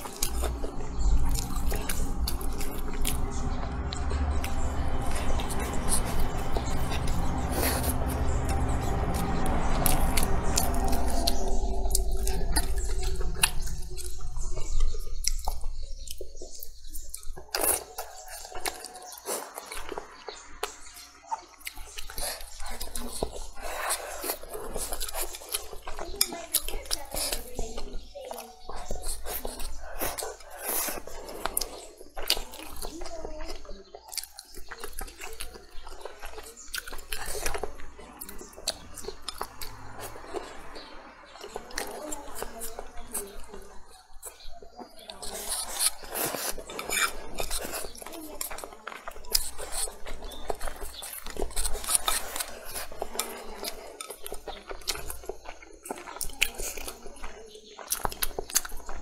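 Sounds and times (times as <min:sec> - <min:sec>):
wet chewing and slurping: 0:00.0 - 0:59.0
lip and tongue smacking: 0:41.4 - 0:59.0.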